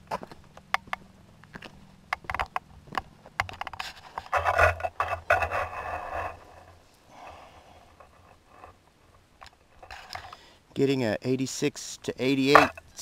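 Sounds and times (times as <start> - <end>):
crunching on gravel: 0.0 - 7.0.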